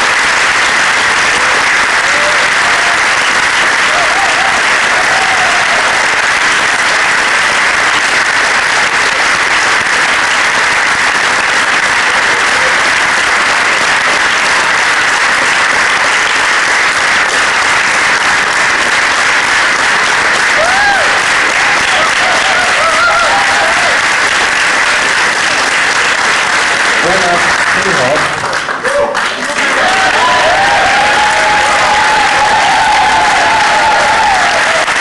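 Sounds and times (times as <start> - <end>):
audience applauding: 0.0 - 35.0.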